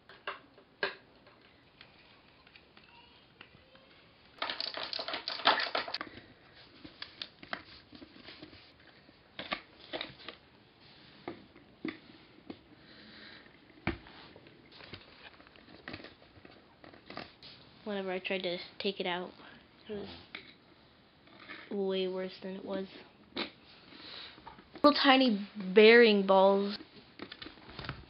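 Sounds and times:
skateboard parts rattling: 4.4 - 6.0.

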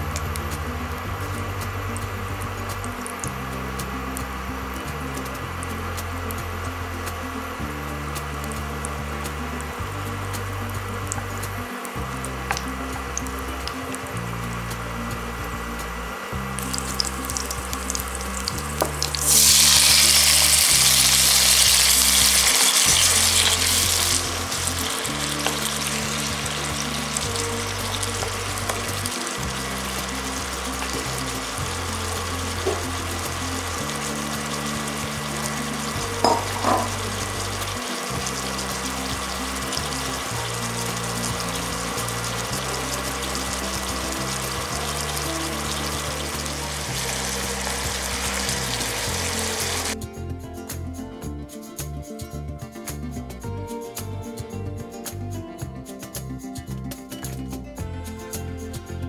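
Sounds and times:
background music with bass line: 0.0 - 59.0
garlic sizzling in oil: 16.2 - 50.0
tomatoes dropped into hot oil: 16.6 - 49.9.

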